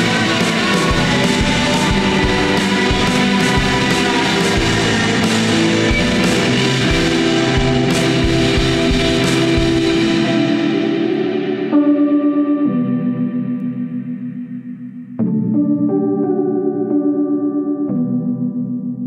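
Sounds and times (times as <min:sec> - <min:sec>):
cymbal crashes: 0:00.0 - 0:11.8
noise rock band playing: 0:00.0 - 0:11.9.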